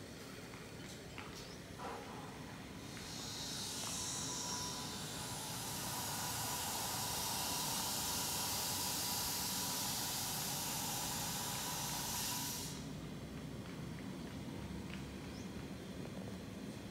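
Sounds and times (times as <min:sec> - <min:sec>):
helicopter rotor high hiss: 0:01.8 - 0:13.1.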